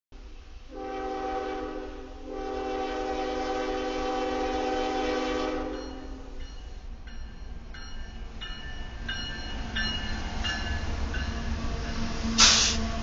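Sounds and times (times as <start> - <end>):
locomotive air horn blasts: 0.7 - 6.4.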